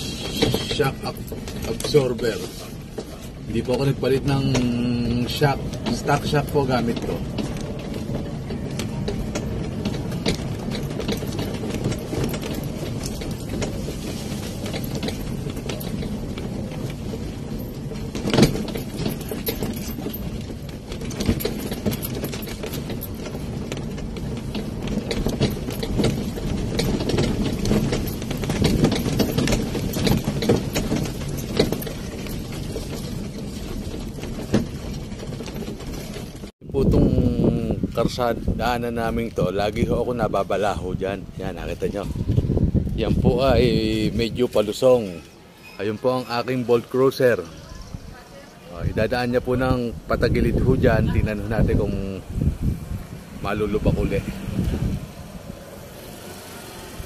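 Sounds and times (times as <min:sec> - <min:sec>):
car body knocks and rattles: 0:00.0 - 0:36.5
road and wind rumble: 0:00.0 - 0:57.0.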